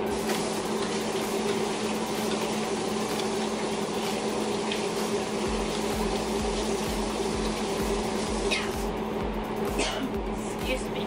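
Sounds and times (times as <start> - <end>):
food simmering hiss: 0.0 - 9.0
constant low hum: 5.4 - 11.0.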